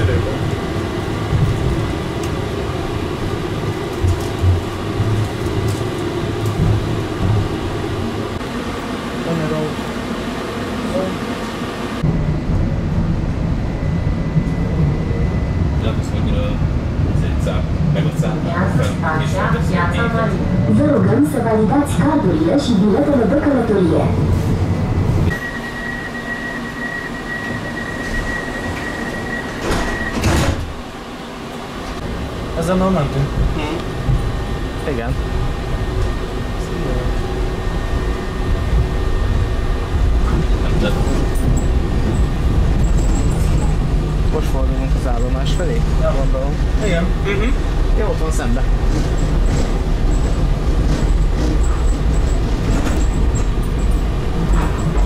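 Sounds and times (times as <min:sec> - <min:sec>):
tram rumbling along track: 0:00.0 - 0:55.0
steady high warning beep: 0:25.3 - 0:30.3
tram doors shutting thump: 0:27.5 - 0:32.2, 0:48.7 - 0:55.0.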